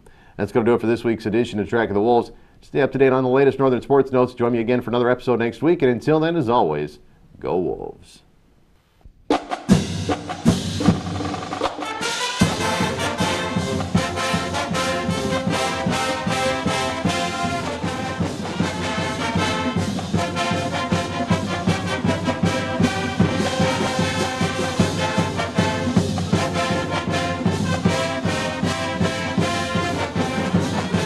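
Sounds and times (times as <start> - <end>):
steady drum beat: 9.3 - 31.0
theme music with brass: 9.4 - 31.0.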